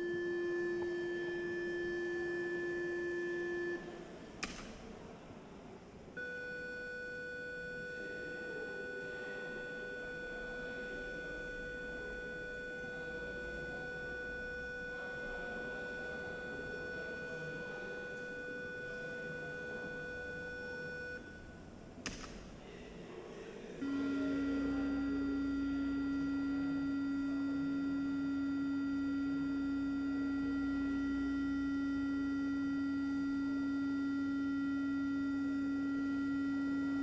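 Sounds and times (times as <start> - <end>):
steady electronic tone: 0.0 - 4.7, 6.2 - 22.0, 23.8 - 37.0
sharp click: 4.4 - 4.9, 22.0 - 22.5.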